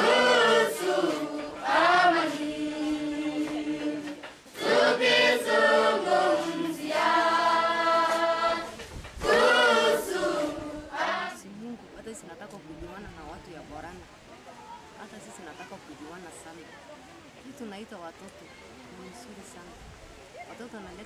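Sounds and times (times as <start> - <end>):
group of people singing: 0.0 - 11.7.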